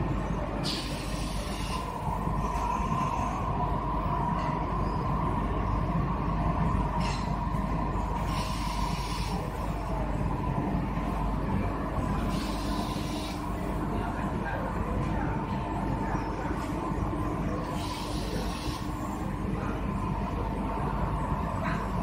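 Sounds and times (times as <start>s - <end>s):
assembly line hum and rumble: 0.0s - 22.0s
short hissing bursts: 12.3s - 13.4s, 17.8s - 18.8s.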